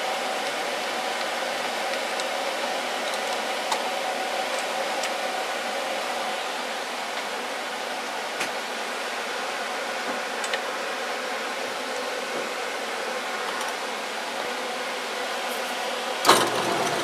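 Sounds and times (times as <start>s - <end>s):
drill press cutting metal: 16.2s - 17.0s.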